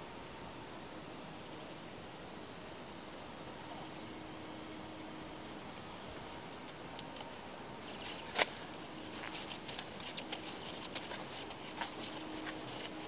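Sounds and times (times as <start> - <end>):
steady hiss: 0.0 - 13.0
footsteps on stony path: 7.2 - 13.0.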